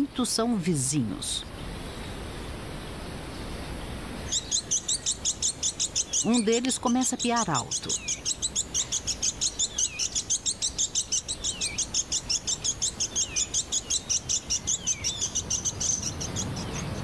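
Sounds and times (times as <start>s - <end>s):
fast high chirping: 4.3s - 17.0s.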